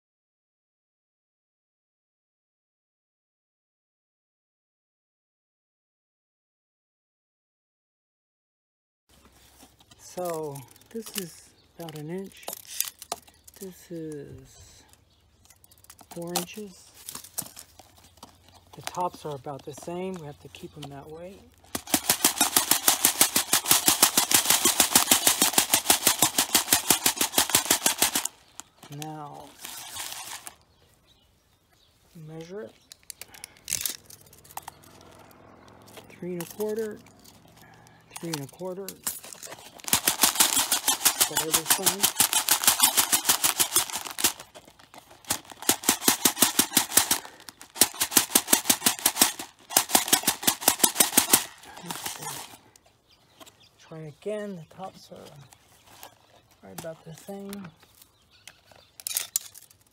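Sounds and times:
granules rattling in plastic bottle: 9.5 - 30.6, 36.2 - 52.7.

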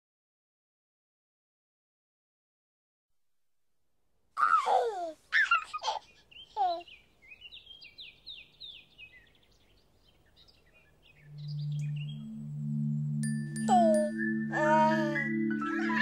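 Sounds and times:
bird calls: 4.4 - 12.6
bird chirping: 5.3 - 16.0
low two-note musical tone: 11.2 - 16.0.

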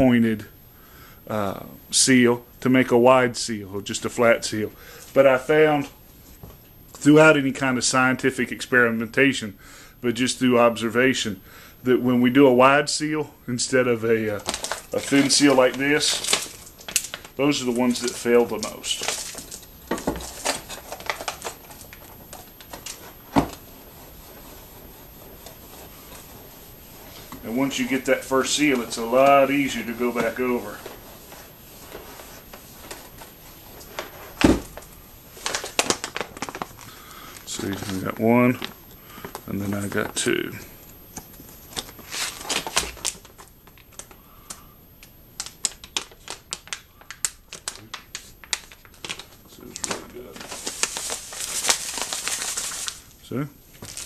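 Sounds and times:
plastic bag crinkling: 14.2 - 40.6, 41.6 - 44.6, 45.4 - 53.1, 53.7 - 54.0
faint steady rub: 23.0 - 28.1.

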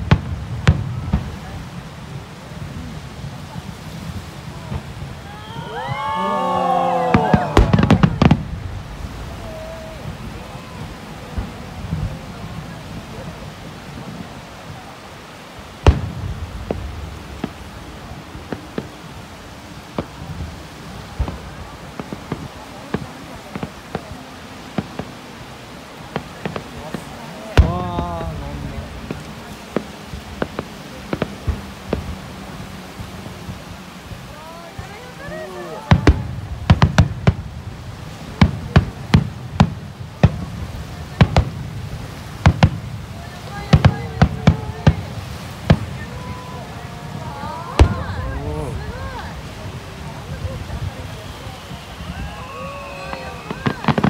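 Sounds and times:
sharp firework bangs: 0.0 - 1.8, 6.7 - 10.4, 15.8 - 19.2, 19.8 - 25.4, 26.0 - 35.0, 35.8 - 49.7, 50.4 - 54.0
firework boom with rumble: 0.0 - 6.1, 6.9 - 14.9, 15.8 - 25.4, 26.1 - 34.9, 35.8 - 54.0.

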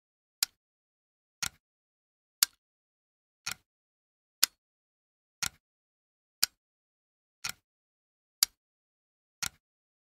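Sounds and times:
clock ticking: 0.4 - 0.6, 1.4 - 1.6, 2.4 - 2.6, 3.4 - 3.7, 4.4 - 4.6, 5.4 - 5.6, 6.4 - 6.6, 7.4 - 7.6, 8.4 - 8.6, 9.4 - 9.6.

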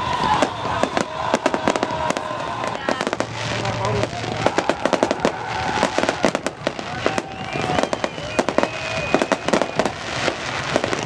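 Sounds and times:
fireworks popping and crackling: 0.0 - 11.0
gliding whistle tones: 6.9 - 11.0.

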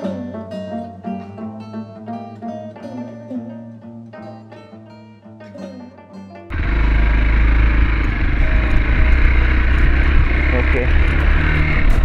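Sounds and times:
plucked guitar melody: 0.0 - 12.0.

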